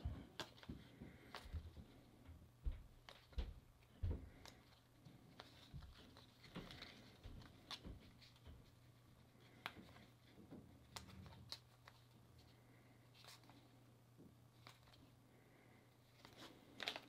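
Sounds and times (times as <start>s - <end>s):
cards being flipped through: 0.0s - 1.6s, 4.3s - 13.8s, 14.5s - 15.1s, 16.1s - 17.0s
low steady hum: 0.0s - 17.0s.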